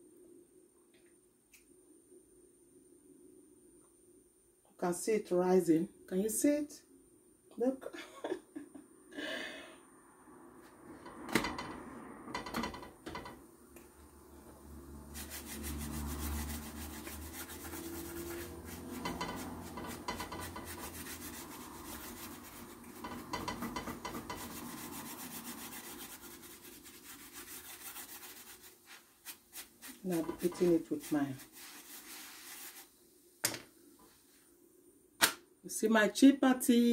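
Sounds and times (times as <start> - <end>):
knock: 12.4 - 13.4, 23.1 - 24.4
pastry brush scratching in frying pan: 15.0 - 33.0.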